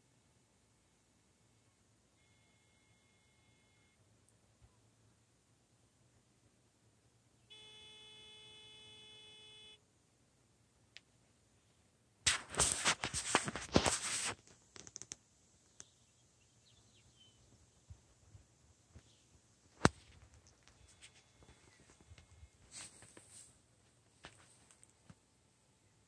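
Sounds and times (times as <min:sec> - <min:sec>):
electronic buzzing tone: 0:02.2 - 0:04.0, 0:07.5 - 0:09.8.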